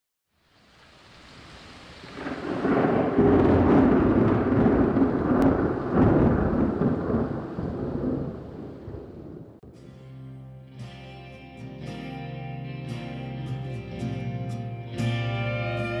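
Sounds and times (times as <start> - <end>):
rain hiss: 0.3 - 9.4
thunder rumbling: 2.0 - 9.7.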